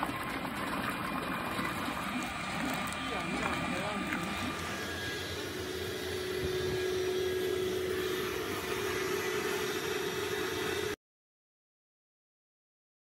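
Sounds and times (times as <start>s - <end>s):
mixer machine whirring: 0.0s - 11.0s.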